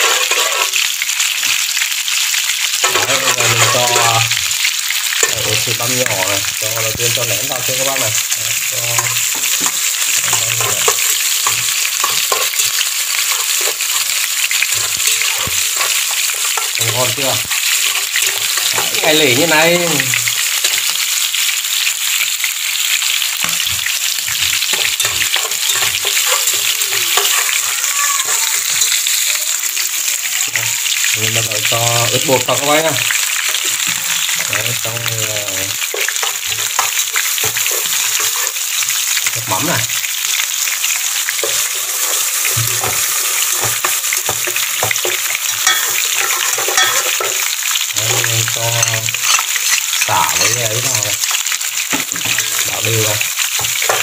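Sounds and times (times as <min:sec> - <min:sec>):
metal turner scraping a pot: 0:00.0 - 0:01.0, 0:02.8 - 0:04.4, 0:05.1 - 0:06.4, 0:07.2 - 0:19.5, 0:23.4 - 0:29.2, 0:32.1 - 0:34.8, 0:35.7 - 0:40.0, 0:40.8 - 0:54.0
shallots sizzling in hot oil: 0:00.0 - 0:54.0.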